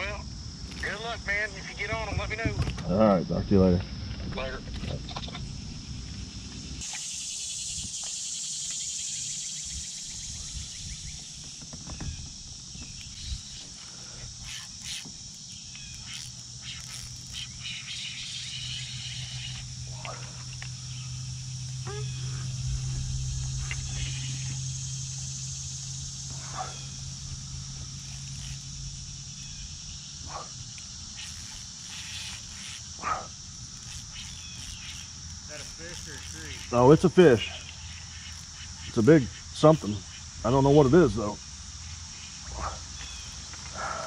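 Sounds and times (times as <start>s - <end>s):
insect chorus drone: 0.0s - 44.0s
low steady hum: 9.5s - 43.5s.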